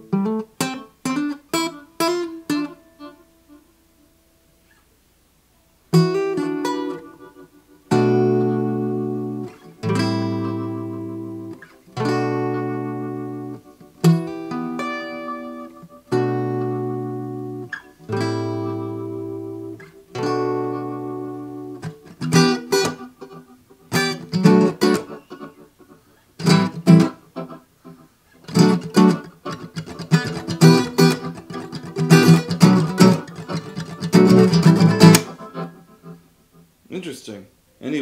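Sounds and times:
acoustic guitar chords strummed: 0:05.9 - 0:36.7.

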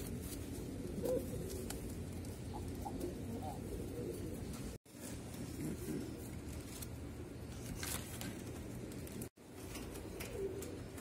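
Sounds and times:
pigeons cooing: 0:00.0 - 0:07.4, 0:09.6 - 0:11.0.

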